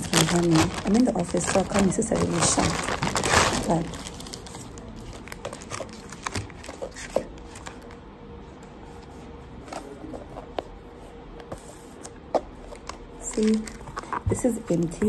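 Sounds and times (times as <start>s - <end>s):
plastic wrapping rustling: 0.0s - 8.0s, 12.5s - 15.0s
faint steady hum: 0.0s - 15.0s.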